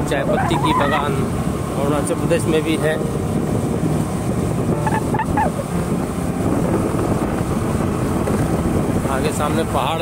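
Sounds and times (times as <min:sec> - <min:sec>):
vehicle road rumble: 0:00.0 - 0:10.0
wind over microphone: 0:00.0 - 0:10.0
high-pitched call: 0:04.7 - 0:05.6.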